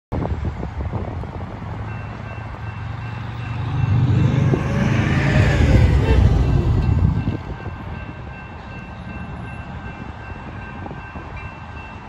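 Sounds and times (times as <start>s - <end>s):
vehicles driving past: 0.5s - 8.2s
crossing warning bell: 1.7s - 12.0s.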